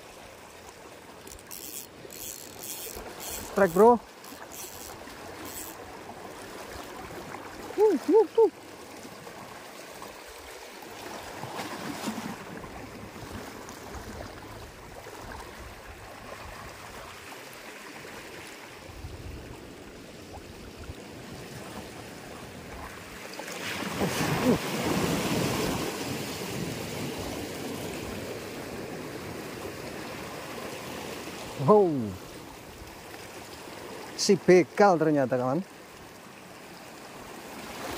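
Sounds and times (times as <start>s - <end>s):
waves lapping against rocks: 0.0s - 34.9s.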